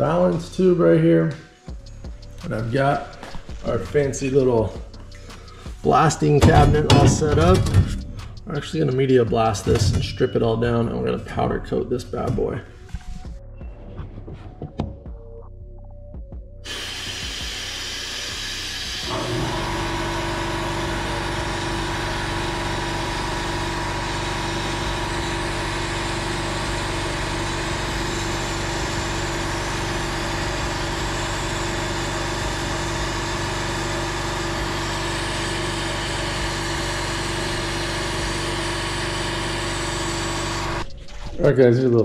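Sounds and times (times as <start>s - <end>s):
machine motor running: 16.7s - 40.9s.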